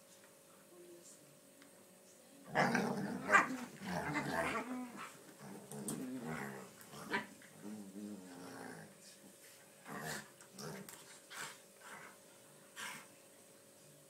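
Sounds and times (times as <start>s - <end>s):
dogs growling and snarling: 2.5s - 9.0s, 9.8s - 12.2s.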